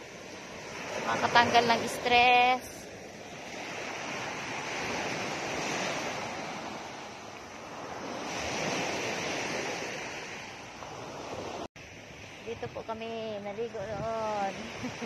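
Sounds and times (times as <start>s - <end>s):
wind on microphone: 0.0s - 15.0s.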